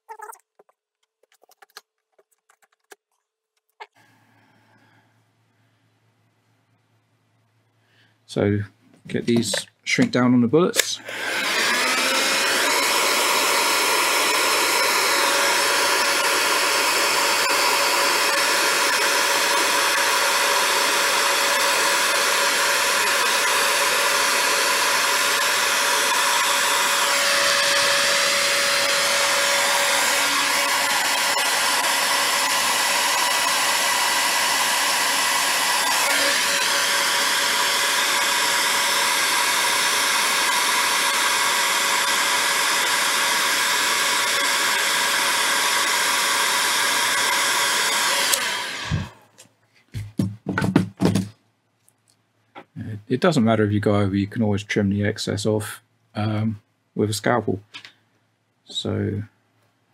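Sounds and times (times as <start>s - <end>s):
heat gun whining air rush: 10.8s - 49.2s.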